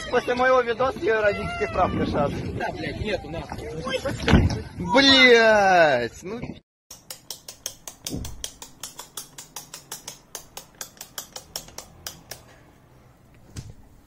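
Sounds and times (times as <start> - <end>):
rapid clicking from wall plug: 6.9 - 12.5.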